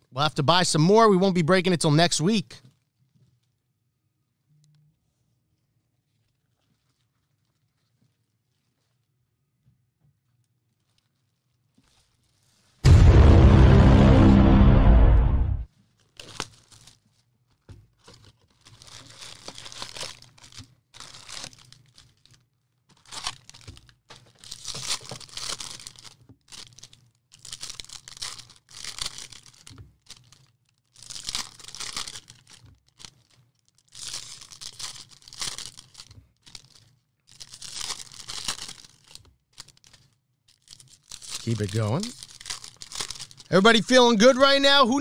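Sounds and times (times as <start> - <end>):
foil wrappers tearing and crinkling: 15.8 - 17.3, 18.0 - 44.0.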